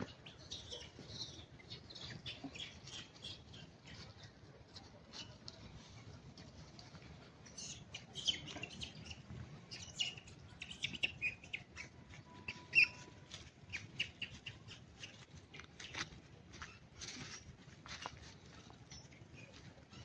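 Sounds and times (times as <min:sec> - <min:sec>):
monkeys squeaking and chirping: 0:07.6 - 0:15.2.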